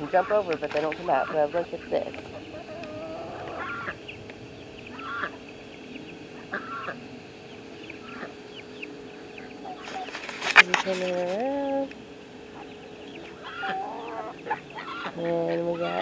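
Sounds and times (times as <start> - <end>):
ducks and chickens calling: 0.0 - 16.0
faint steady hum: 0.0 - 16.0.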